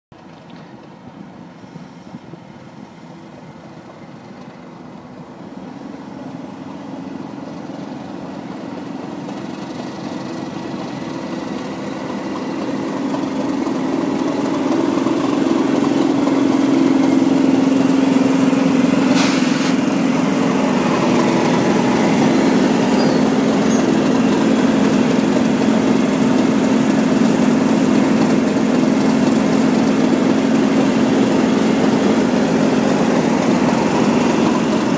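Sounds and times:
diesel locomotive engines droning: 0.1 - 34.9
short sharp hiss: 19.0 - 19.8.

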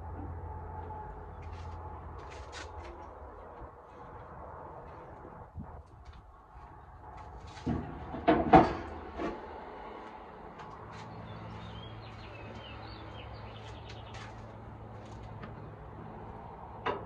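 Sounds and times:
birds chirping: 10.9 - 14.6.

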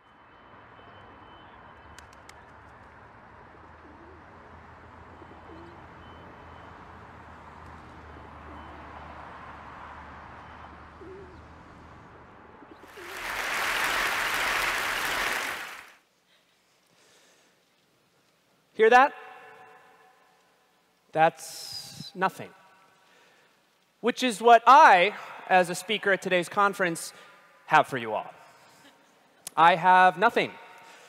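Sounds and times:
low city rumble: 0.0 - 13.9
pigeons cooing: 3.6 - 6.4, 10.8 - 12.0
loud applause: 12.8 - 16.0.

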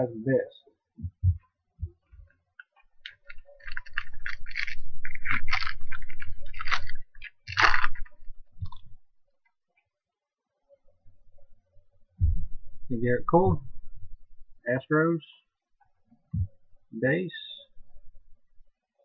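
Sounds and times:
crackling rustles: 2.2 - 9.0
foil wrapper crinkling: 2.8 - 9.0.

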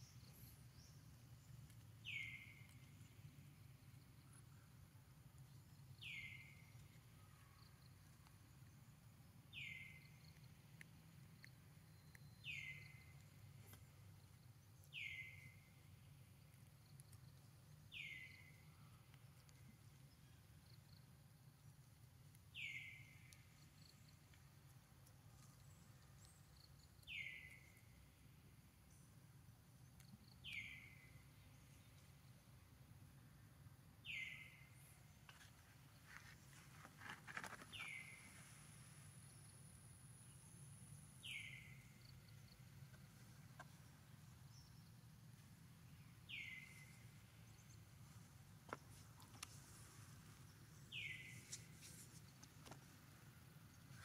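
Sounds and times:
low steady hum: 38.0 - 54.0.

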